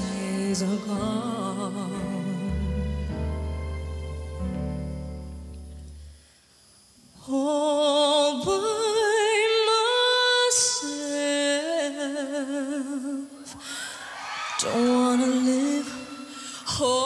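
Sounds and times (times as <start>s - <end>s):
woman singing unaccompanied: 0.0s - 3.1s, 7.2s - 13.6s, 14.6s - 17.0s
orchestral chord: 1.6s - 6.0s.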